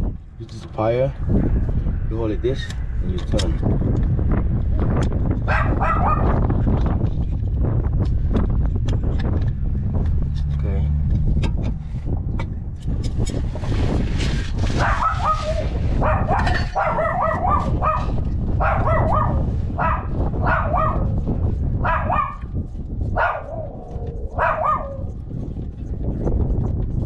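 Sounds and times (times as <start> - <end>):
low steady rumble: 0.0 - 27.0
dog barking: 5.5 - 6.4, 14.8 - 21.2, 21.8 - 25.1.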